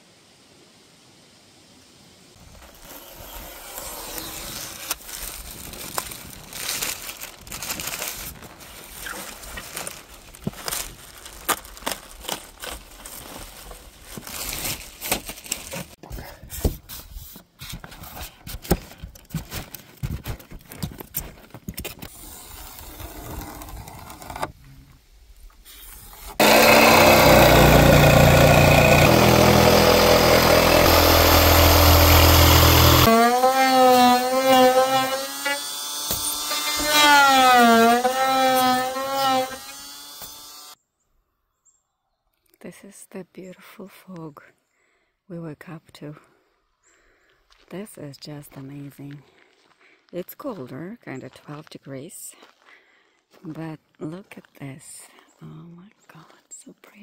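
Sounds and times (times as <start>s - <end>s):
jigsaw cutting foam: 2.7s - 7.9s, 22.0s - 24.5s, 26.1s - 40.8s
foam insulation scraping and clicking: 16.6s - 24.6s.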